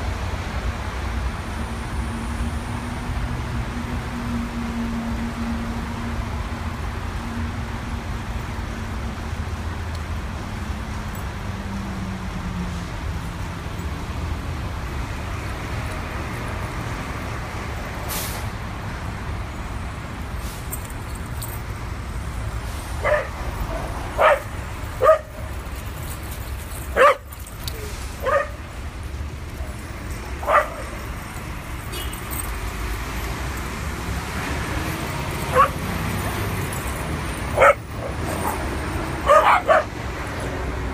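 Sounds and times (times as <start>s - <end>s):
road traffic rumble: 0.0s - 40.9s
dog barking: 23.0s - 25.4s, 26.9s - 27.3s, 28.2s - 28.6s, 30.4s - 31.0s, 35.5s - 35.9s, 37.6s - 40.0s.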